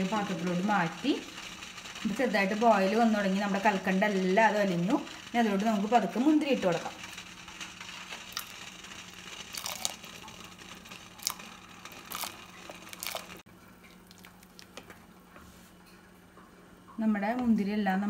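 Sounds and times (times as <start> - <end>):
raisins splashing into pot: 6.7 - 15.1.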